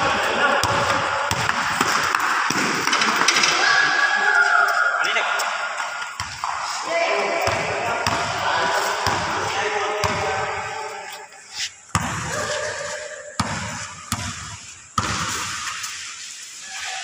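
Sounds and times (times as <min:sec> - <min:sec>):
basketball bouncing on concrete: 0:00.6 - 0:03.5, 0:06.2 - 0:06.6, 0:07.4 - 0:08.4, 0:10.0 - 0:10.4, 0:11.9 - 0:12.4, 0:13.4 - 0:15.6.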